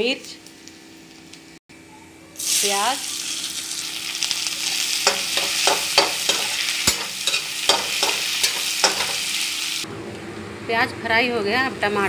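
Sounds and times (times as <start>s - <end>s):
onions sizzling in hot oil: 2.4s - 9.9s
spatula scraping and knocking pan: 5.0s - 9.3s.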